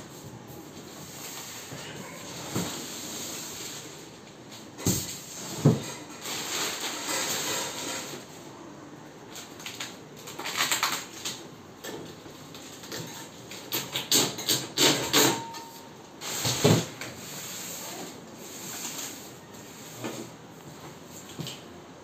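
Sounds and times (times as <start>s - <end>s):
rustling and handling noise: 0.0s - 8.5s.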